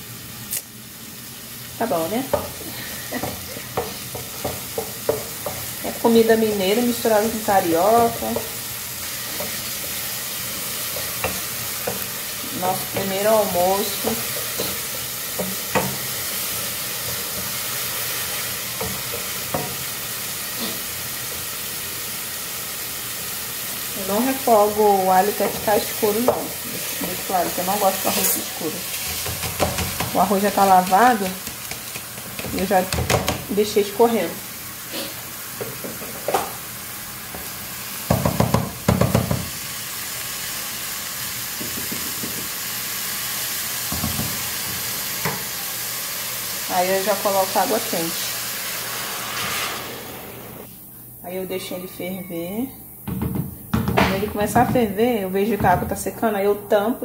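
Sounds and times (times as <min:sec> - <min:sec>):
onion sizzling in oil: 0:00.0 - 0:51.8
spoon stirring and knocking pot: 0:02.3 - 0:02.6, 0:03.2 - 0:05.9, 0:10.8 - 0:17.7, 0:25.3 - 0:27.3, 0:29.0 - 0:33.5
wooden spoon stirring: 0:07.1 - 0:19.6
spoon knocking against pot: 0:29.1 - 0:30.3, 0:31.1 - 0:33.5, 0:38.1 - 0:39.5.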